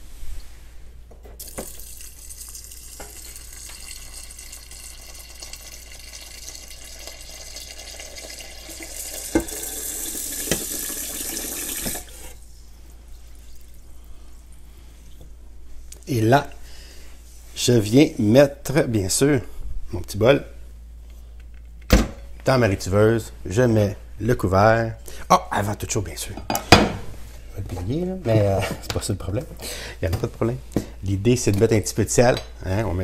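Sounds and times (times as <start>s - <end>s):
faucet running water into bowl: 1.4s - 12.4s.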